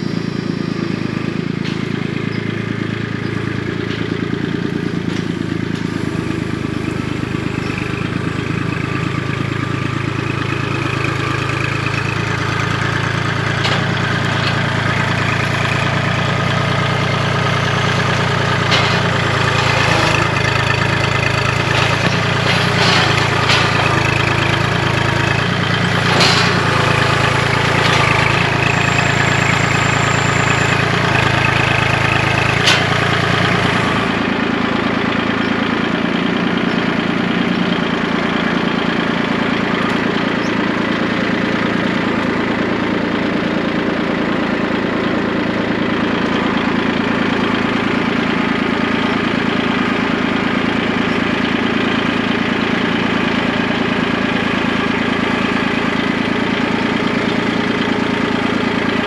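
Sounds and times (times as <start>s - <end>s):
tractor diesel engine running: 0.0s - 59.0s
sharp knocks of loader: 10.9s - 36.2s.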